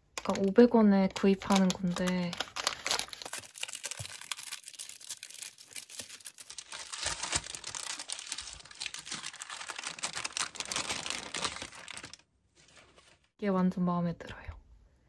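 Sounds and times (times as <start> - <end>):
paper crinkling and rustling: 1.1 - 13.3.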